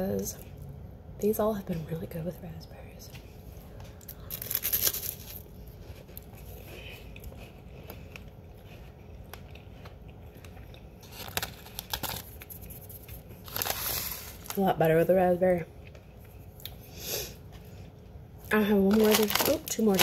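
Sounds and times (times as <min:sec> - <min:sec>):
chewing: 0:05.7 - 0:13.4
crunchy wafer bite: 0:09.1 - 0:12.7.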